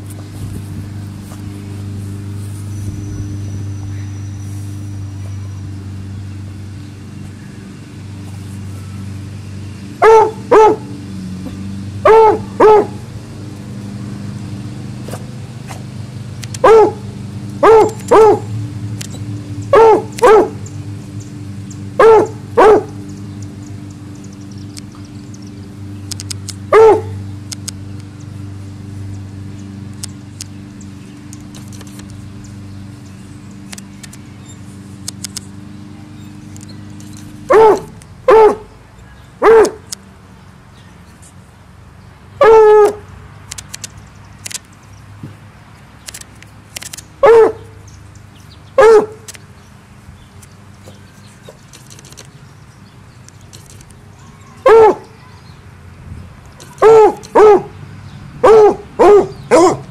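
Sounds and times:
steady low hum: 0:00.0 - 0:54.5
dog barking: 0:10.0 - 0:10.9, 0:12.0 - 0:13.0, 0:16.6 - 0:17.0, 0:17.6 - 0:18.5, 0:19.7 - 0:20.6, 0:22.0 - 0:23.0, 0:26.7 - 0:27.2, 0:37.5 - 0:38.8, 0:39.4 - 0:39.9, 0:42.4 - 0:43.1, 0:47.2 - 0:47.7, 0:48.8 - 0:49.2, 0:54.6 - 0:55.2, 0:56.7 - 0:57.8, 0:58.4 - 0:59.9.

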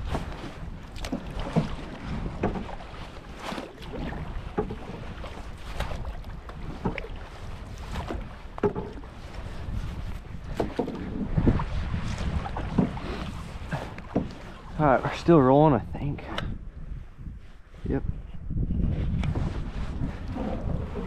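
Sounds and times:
water slapping boat hull: 0:00.0 - 0:17.7, 0:18.4 - 0:21.0
wind rumble on microphone: 0:00.0 - 0:21.0.

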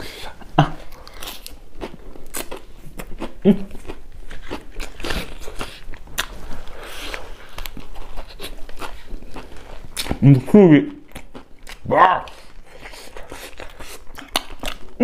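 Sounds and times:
crunching and chewing: 0:00.1 - 0:15.0
mouth sound: 0:03.4 - 0:03.9, 0:11.8 - 0:12.5.

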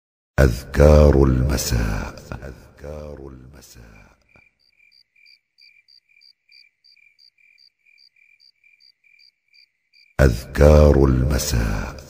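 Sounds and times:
cricket chirping: 0:04.0 - 0:10.2.

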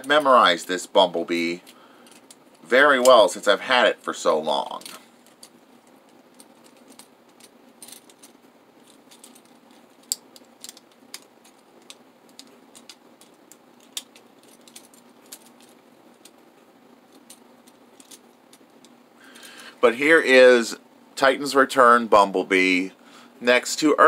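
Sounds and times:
plastic toy parts clicking: 0:09.1 - 0:16.4.

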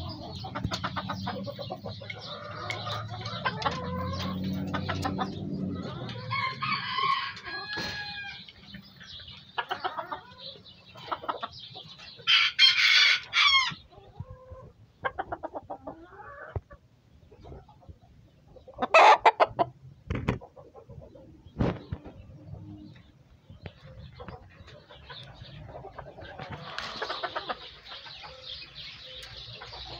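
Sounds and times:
roosters clucking: 0:00.0 - 0:29.9
rooster crowing loudly: 0:06.3 - 0:08.4, 0:12.3 - 0:13.8.

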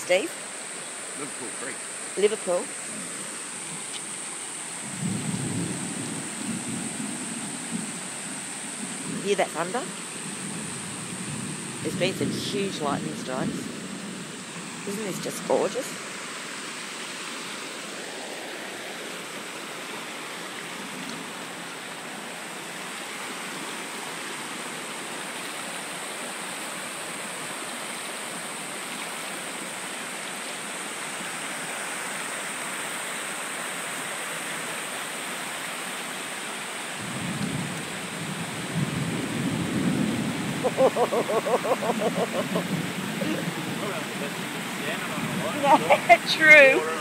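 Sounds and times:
creek water pouring over concrete: 0:00.0 - 0:47.0
heavy rain hissing: 0:00.0 - 0:47.0.

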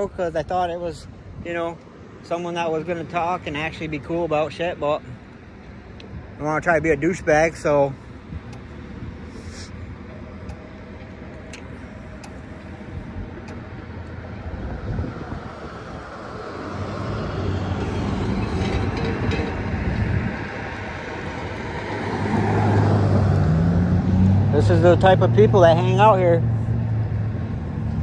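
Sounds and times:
road and engine noise: 0:00.0 - 0:28.0
truck driving past: 0:13.9 - 0:28.0.

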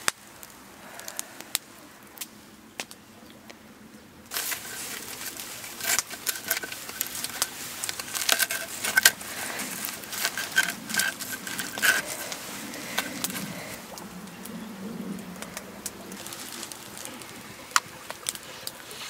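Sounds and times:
knife crunching through pizza crust: 0:04.3 - 0:13.8.

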